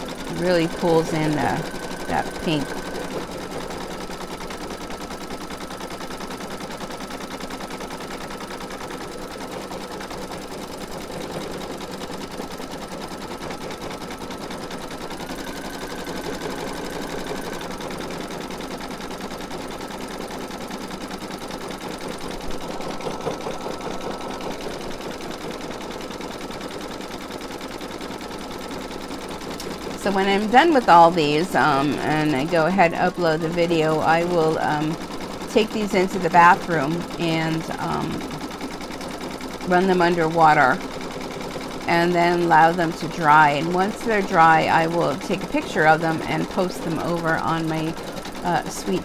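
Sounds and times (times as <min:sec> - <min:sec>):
motor whine: 0:00.0 - 0:08.9, 0:09.9 - 0:26.9
embroidery machine needle clatter: 0:00.0 - 0:49.0.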